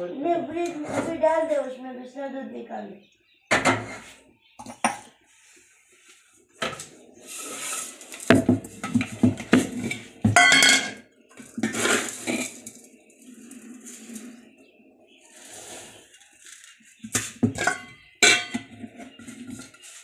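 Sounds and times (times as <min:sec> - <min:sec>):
metal utensils clattering: 0:03.5 - 0:05.0, 0:06.6 - 0:14.3, 0:16.3 - 0:20.0.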